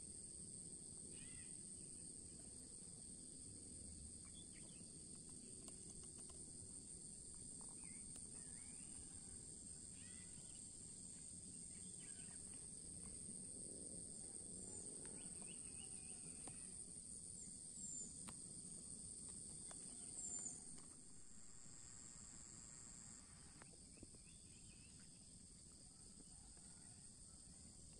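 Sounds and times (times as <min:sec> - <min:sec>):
high-pitched insect chorus: 0:00.0 - 0:27.9
soft bird chirps: 0:04.2 - 0:04.8.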